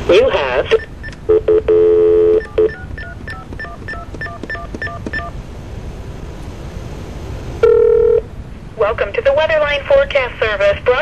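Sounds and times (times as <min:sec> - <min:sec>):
touch-tone keypad digits: 0:00.7 - 0:05.3
telephone line tone: 0:00.7 - 0:05.4, 0:07.6 - 0:08.3.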